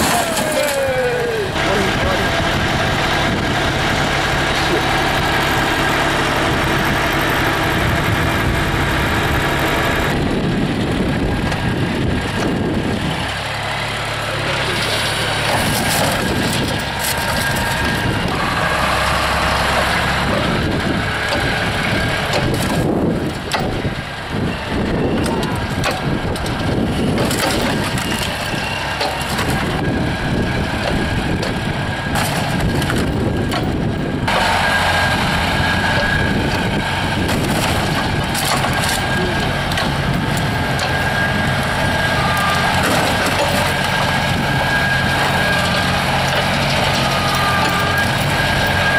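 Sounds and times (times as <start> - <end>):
diesel excavator engine under load: 0.0 - 48.9
metal crunching and clanking: 0.0 - 48.9.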